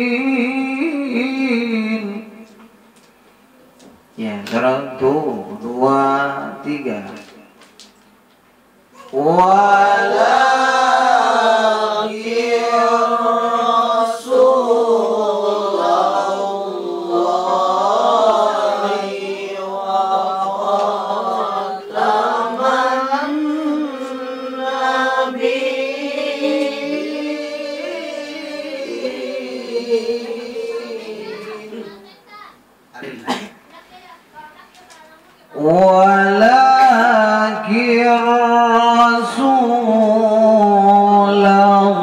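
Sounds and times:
man chanting melodically: 4.2 - 7.4, 35.6 - 42.0.

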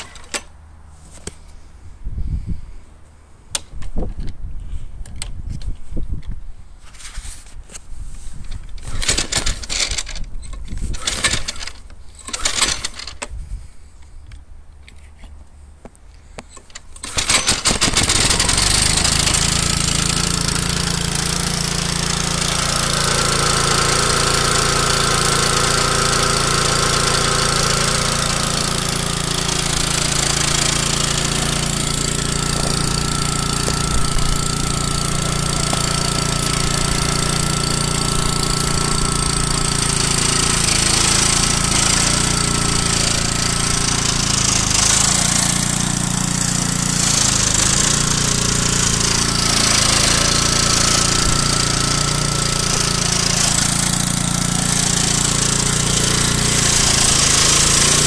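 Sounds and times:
small engine running: 8.8 - 13.2, 16.7 - 58.0.

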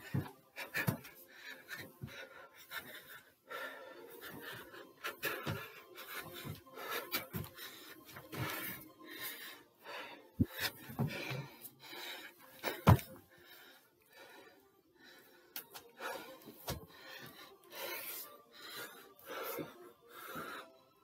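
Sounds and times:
man panting heavily: 0.0 - 21.0
feet thudding on stair step: 10.5 - 11.4, 12.7 - 13.2.

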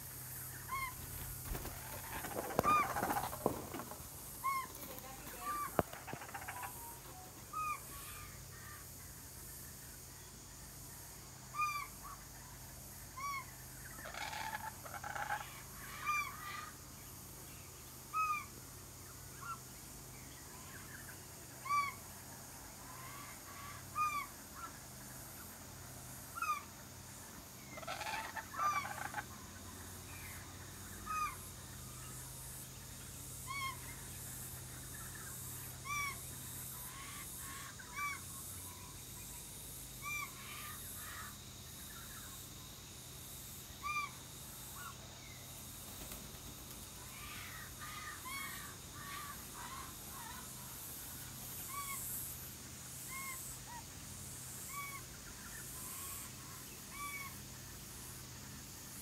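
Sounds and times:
kookaburra calling: 0.5 - 8.8, 13.2 - 16.8, 27.7 - 29.3, 31.0 - 31.5, 35.8 - 36.2.

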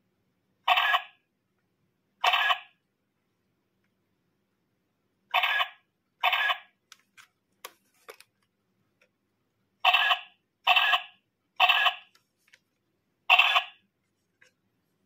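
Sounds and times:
toy camera electronic sound: 0.7 - 1.2, 2.2 - 2.7, 5.4 - 6.7, 9.8 - 12.1, 13.3 - 13.8.

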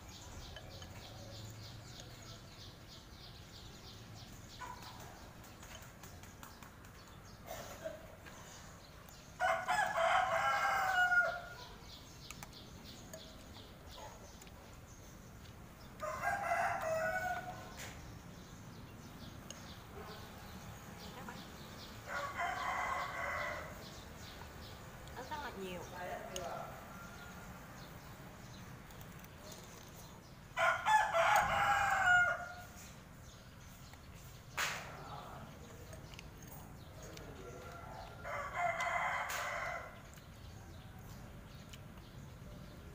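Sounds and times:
rooster crowing: 9.4 - 11.6, 30.6 - 32.7.

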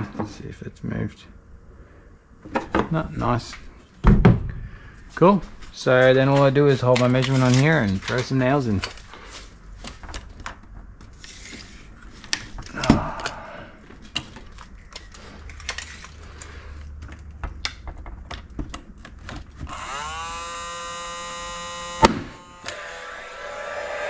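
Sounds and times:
nailer fan whirring: 19.6 - 24.0
nail gun firing crack: 22.0 - 22.8.

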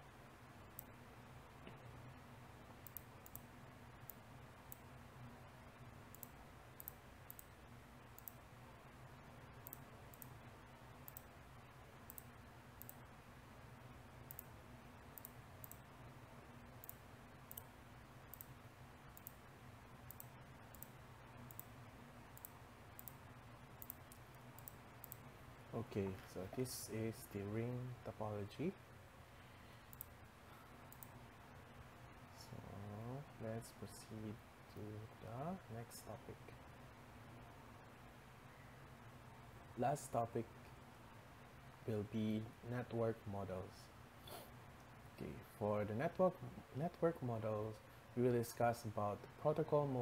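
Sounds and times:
low steady hum: 0.0 - 50.0
computer mouse clicks: 2.8 - 4.9, 6.1 - 7.5, 8.2 - 8.4, 9.6 - 10.4, 11.0 - 11.3, 12.1 - 13.0, 14.3 - 14.5, 15.2 - 15.8, 16.8 - 17.7, 18.3 - 19.4, 20.1 - 21.7, 22.4 - 23.2, 23.8 - 25.3, 29.9 - 30.2, 30.9 - 31.2.

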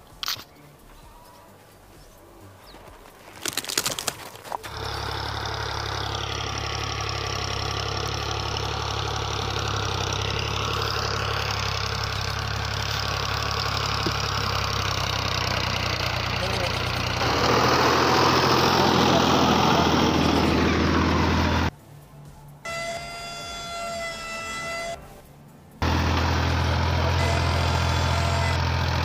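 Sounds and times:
sharp clicks: 0.1 - 0.5, 3.0 - 4.8
small motor humming: 4.6 - 21.7, 22.7 - 25.0, 25.8 - 29.0.

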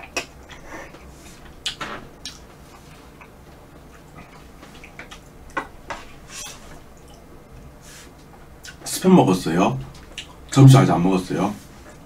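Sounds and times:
mouth eating wet clicks: 0.0 - 5.4.

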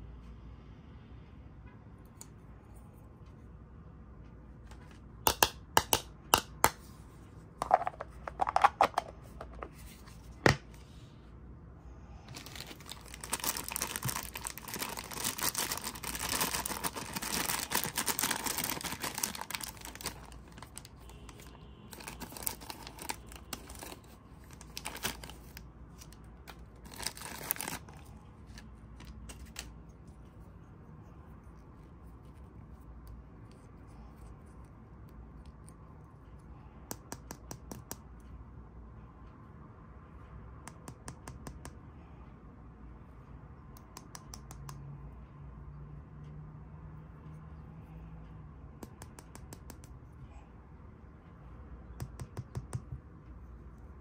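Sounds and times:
plastic bag crinkling and tearing: 12.3 - 28.1.

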